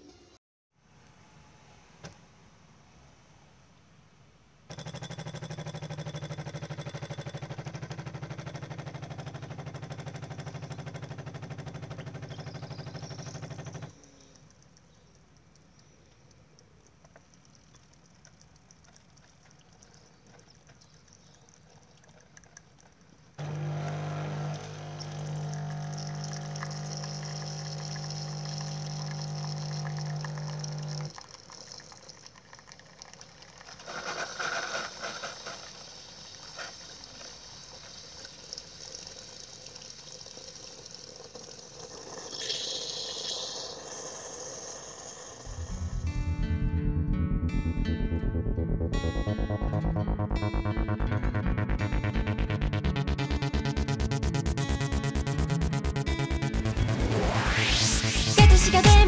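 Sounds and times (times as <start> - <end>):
coffee machine pump humming: 4.7 - 13.9, 23.4 - 45.9
drink streaming into cup: 4.7 - 13.9, 17.8 - 45.9.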